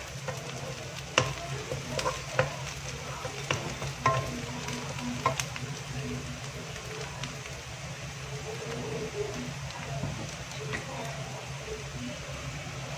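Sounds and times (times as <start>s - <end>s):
onions sizzling in hot oil: 0.0s - 12.9s
wooden spatula clicking on pan: 0.2s - 5.6s.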